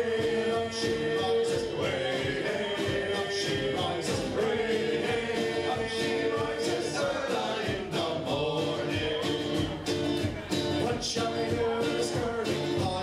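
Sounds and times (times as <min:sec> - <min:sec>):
drum beat: 0:00.0 - 0:13.0
strummed acoustic guitars: 0:00.0 - 0:13.0
voices singing together: 0:00.0 - 0:13.0.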